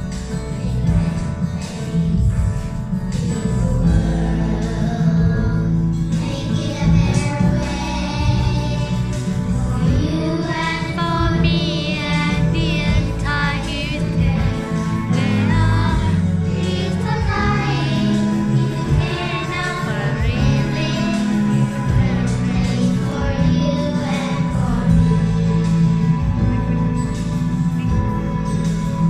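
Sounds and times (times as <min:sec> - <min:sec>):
children singing through microphones: 0:00.0 - 0:02.5, 0:03.1 - 0:26.7
musical accompaniment: 0:00.0 - 0:29.0.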